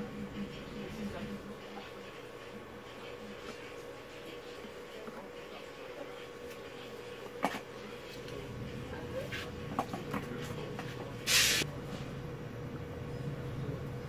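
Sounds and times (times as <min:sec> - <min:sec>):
faint hum and low rumble: 0:00.0 - 0:14.0
brief loud hiss: 0:11.3 - 0:11.6.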